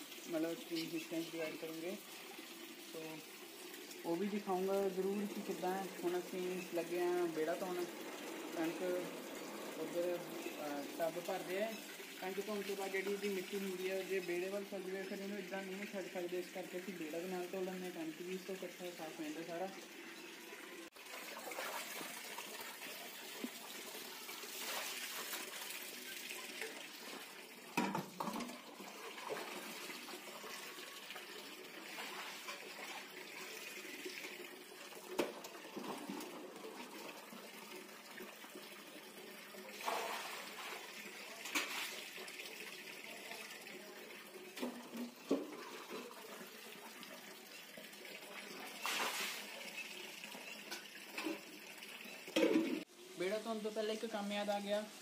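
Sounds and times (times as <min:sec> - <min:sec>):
tap water filling metal bucket: 0:00.0 - 0:52.9
bucket knocks and clanks: 0:27.8 - 0:28.6, 0:52.4 - 0:52.8.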